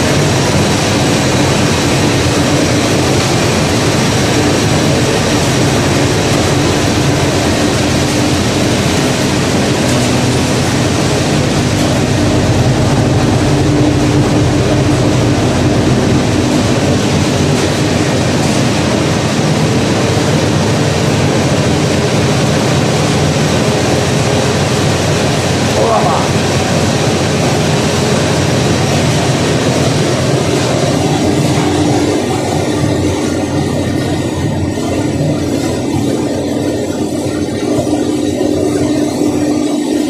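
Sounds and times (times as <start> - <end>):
oil press machine running: 0.0 - 40.0.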